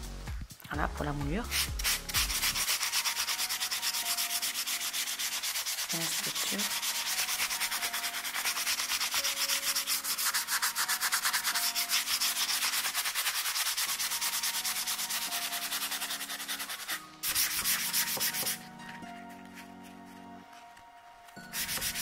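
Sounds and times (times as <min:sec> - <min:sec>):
sanding sponge rubbing on wood: 0:01.5 - 0:18.6, 0:21.5 - 0:22.0.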